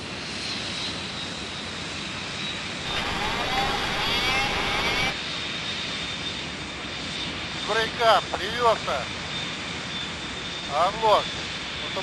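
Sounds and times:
cockpit engine noise: 0.8 - 12.0
warbling warning siren: 2.8 - 5.2.

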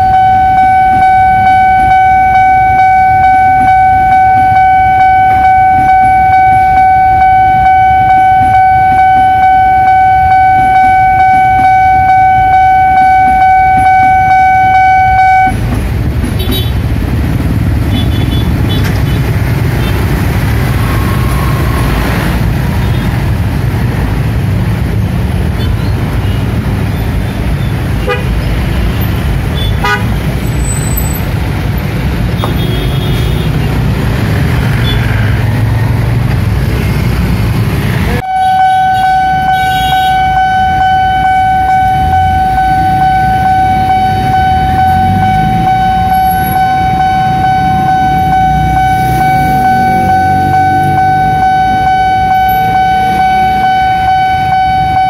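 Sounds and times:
steady electronic warning tone: 0.0 - 15.6, 38.2 - 55.0
motorbike and rickshaw engines: 0.0 - 55.0.

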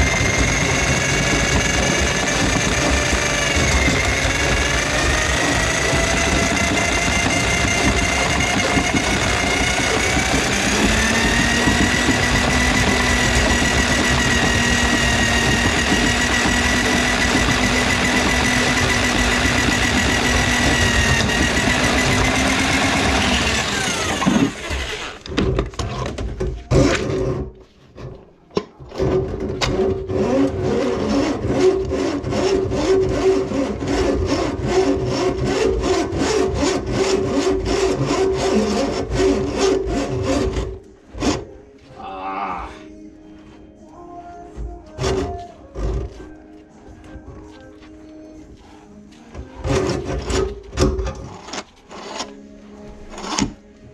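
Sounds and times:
drain auger motor humming: 0.0 - 25.3
cable and drum knocking and rattling: 0.0 - 30.7, 44.5 - 46.4, 49.3 - 51.6.

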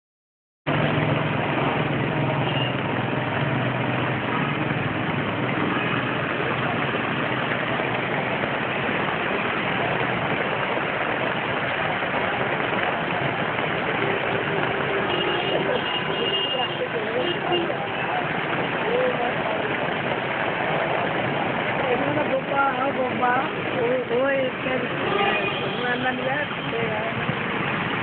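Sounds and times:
engine-like hum: 0.7 - 22.4
constant wash of noise: 0.7 - 28.0.

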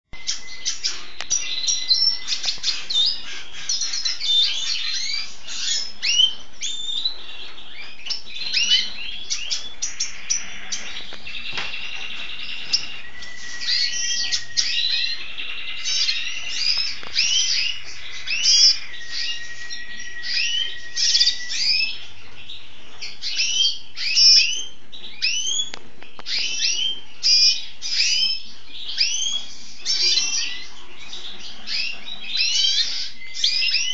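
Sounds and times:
bird twittering song: 0.1 - 33.9
long whistled bird notes: 11.3 - 22.2.

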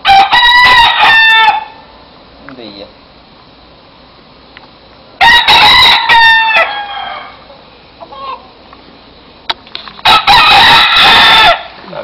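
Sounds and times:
rooster crowing: 0.0 - 1.9, 5.2 - 8.6, 10.0 - 11.8
soft rooster call: 0.0 - 1.9, 5.2 - 8.6, 10.0 - 11.8.

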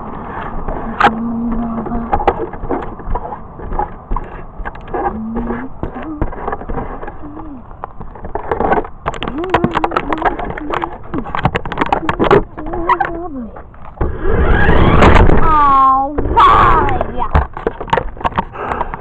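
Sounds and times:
plastic body clicks and knocks: 1.0 - 14.0, 16.9 - 19.0.

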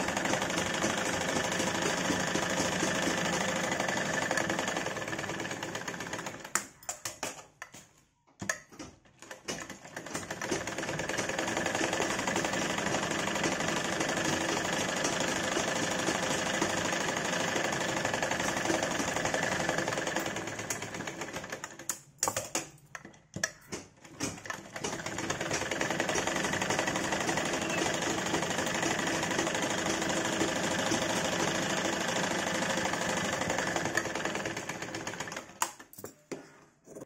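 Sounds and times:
sewing machine running: 0.0 - 6.6, 9.3 - 21.9, 24.1 - 35.6
sewing machine clicks: 8.4 - 35.9.

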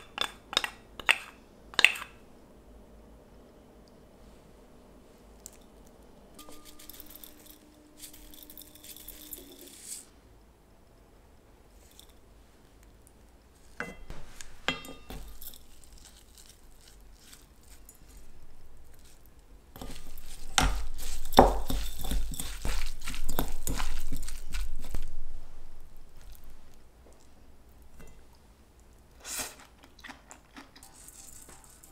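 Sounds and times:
hands squishing wet spinach: 15.2 - 25.1.

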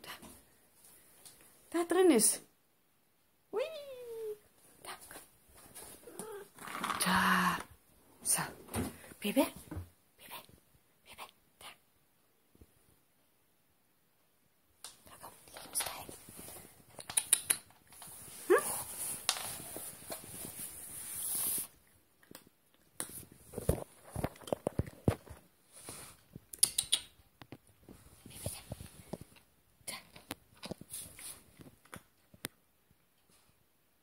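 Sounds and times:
cat crunching dry kibble: 22.2 - 25.4.

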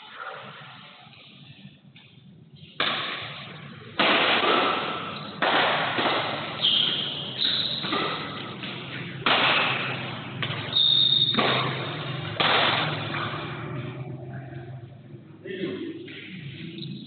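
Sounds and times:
badminton racket hitting shuttlecock: 2.7 - 14.2.

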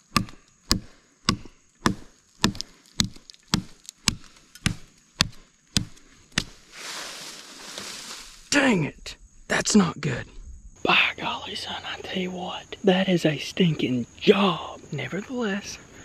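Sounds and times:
hatchet chopping wood: 0.0 - 6.6
soft steady hiss: 0.0 - 16.0.

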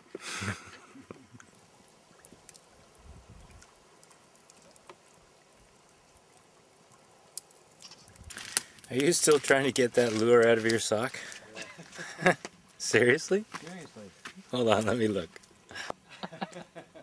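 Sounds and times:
soft water sounds: 0.0 - 16.6
small scattered clicks: 7.3 - 9.5.

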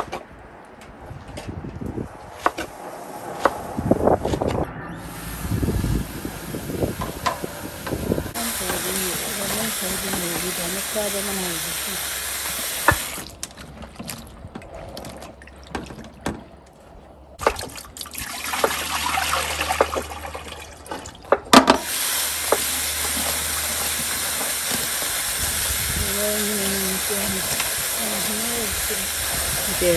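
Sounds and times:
water pouring into sink: 17.4 - 21.2.

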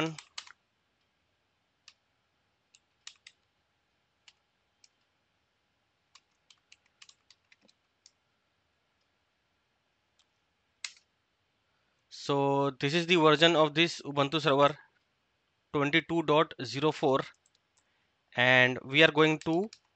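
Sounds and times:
computer keyboard keys clicking: 0.0 - 0.6, 2.7 - 3.5, 6.1 - 8.2.

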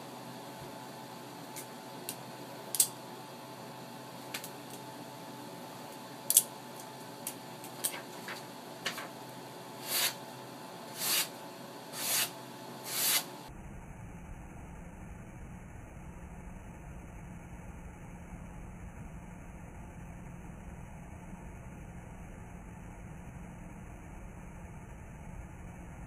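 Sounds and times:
blade swishing through paper: 9.8 - 10.2, 10.9 - 11.3, 11.9 - 13.3.

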